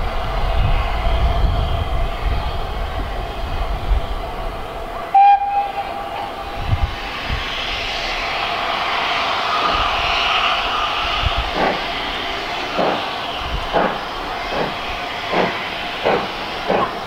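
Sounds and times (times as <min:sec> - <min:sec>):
steam locomotive whistle blast: 0:05.1 - 0:06.4.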